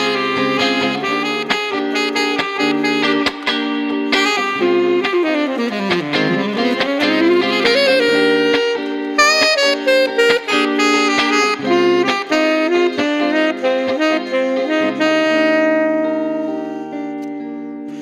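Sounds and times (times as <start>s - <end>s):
electric guitar chords: 0.0s - 18.0s
jazzy saxophone solo: 0.0s - 18.0s.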